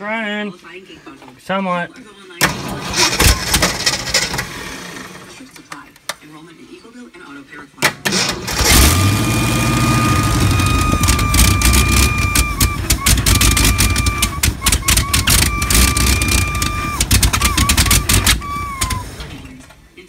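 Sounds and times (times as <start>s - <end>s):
engine running roughly with pops: 8.0s - 19.2s
steady high whistle: 10.2s - 19.0s.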